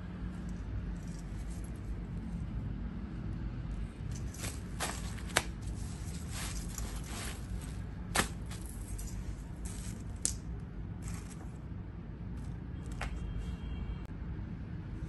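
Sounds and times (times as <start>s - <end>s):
paper and leather rustling: 4.1s - 10.2s, 11.0s - 11.6s.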